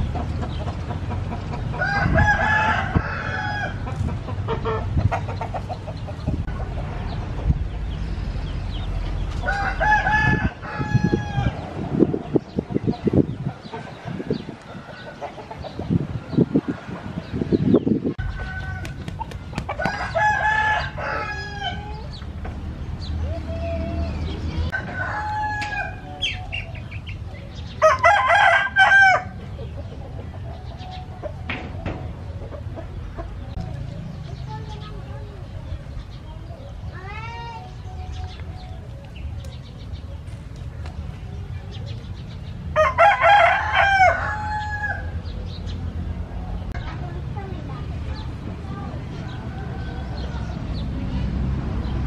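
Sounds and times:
clucking calls: 0.0 - 1.9, 3.8 - 7.6, 11.8 - 17.1, 29.3 - 33.7
chickens clucking: 0.0 - 22.6, 23.2 - 43.4
rooster crowing: 9.5 - 11.5, 18.2 - 19.0, 19.8 - 21.8, 24.7 - 26.0, 42.8 - 45.1.

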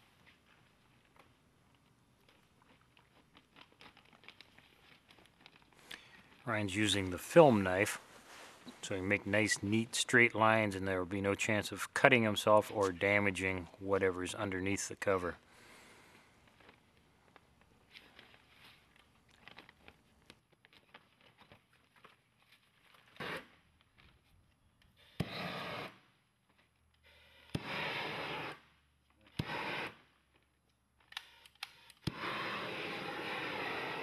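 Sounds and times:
plastic film crackling: 0.0 - 6.9
heat gun blasting: 25.2 - 26.0, 27.5 - 28.6, 29.4 - 30.0, 32.0 - 34.0.

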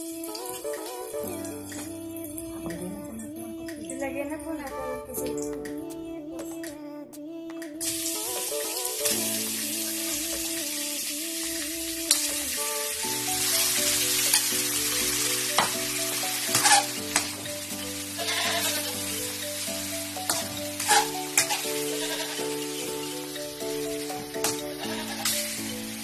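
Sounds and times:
slow background music: 0.0 - 26.0
squid sizzling in a wok: 13.2 - 23.5, 24.4 - 26.0.

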